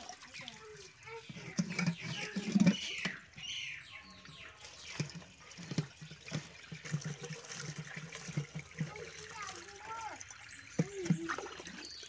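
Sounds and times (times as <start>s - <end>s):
water pouring and splashing: 0.0s - 12.0s.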